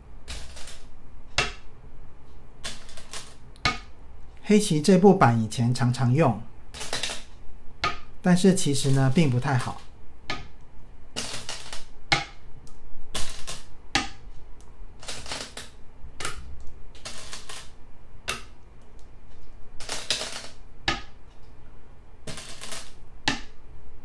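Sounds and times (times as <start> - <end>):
stones clicking on game board: 2.6 - 3.9, 11.2 - 14.2, 15.0 - 21.5, 22.3 - 23.6.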